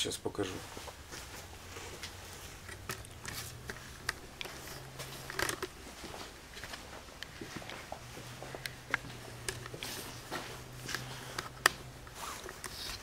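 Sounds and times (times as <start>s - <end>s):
low steady hum: 0.0s - 13.0s
camera handling clicks and rustles: 2.0s - 5.9s, 8.6s - 13.0s.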